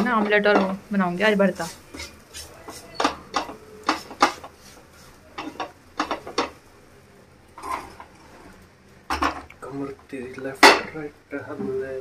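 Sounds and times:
spatula scraping a frying pan: 0:00.0 - 0:06.6, 0:07.6 - 0:08.6.

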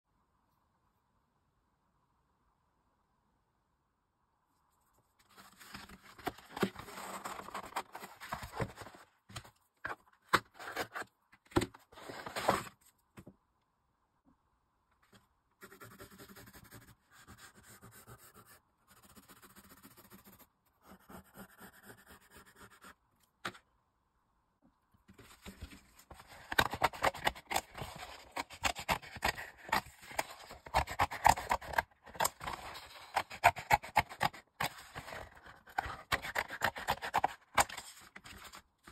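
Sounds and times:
cardboard scraping and rustling: 0:05.2 - 0:12.8, 0:25.1 - 0:38.9
pencil scratching on cardboard: 0:15.6 - 0:23.0, 0:26.5 - 0:37.8
scissors cutting cardboard: 0:25.5 - 0:38.6.

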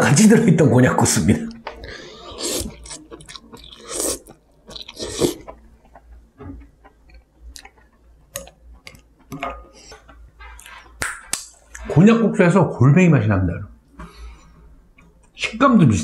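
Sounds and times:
chewing with wet mouth clicks: 0:01.6 - 0:09.3
person slurping noodles: 0:01.8 - 0:05.5.

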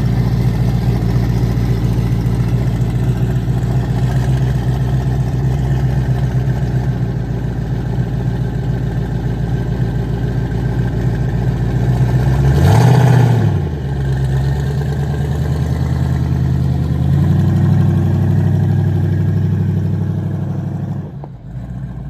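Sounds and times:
car engine revving and idling: 0:00.0 - 0:22.0.

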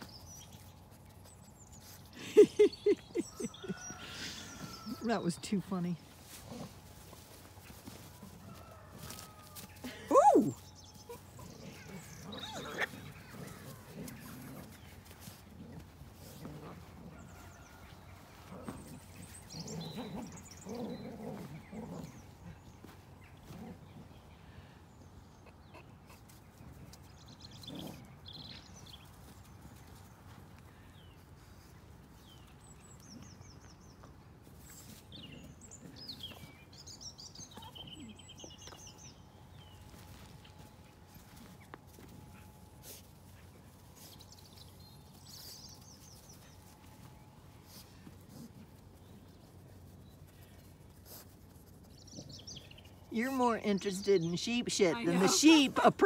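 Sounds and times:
small songbirds singing: 0:00.0 - 0:06.1, 0:17.2 - 0:30.2, 0:30.8 - 0:40.6, 0:42.3 - 0:56.0
small birds chirping: 0:00.0 - 0:56.0
snuffling and grunting: 0:00.3 - 0:24.3.

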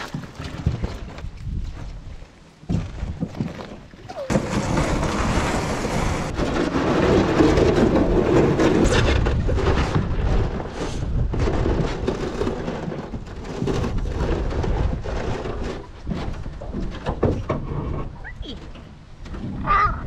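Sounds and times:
boat hull scraping over gravel: 0:00.0 - 0:19.6.

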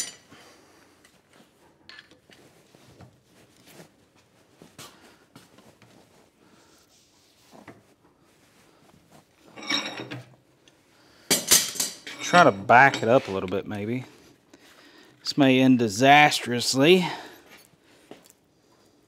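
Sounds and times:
faint metal clinks and knocks: 0:09.4 - 0:13.6.

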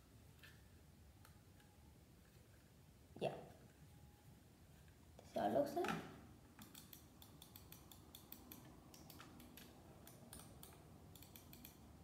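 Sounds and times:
plastic mouse clicking on tile: 0:06.6 - 0:11.8.

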